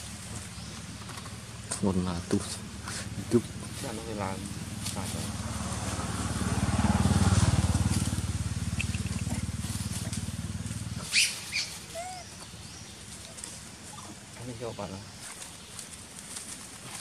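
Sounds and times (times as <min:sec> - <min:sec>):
small engine running: 0:00.1 - 0:11.7.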